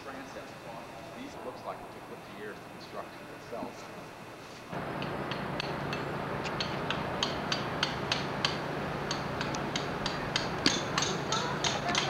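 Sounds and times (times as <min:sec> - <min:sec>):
steady low hum: 0:00.0 - 0:12.0
hammer striking chisel on stone: 0:05.3 - 0:12.0.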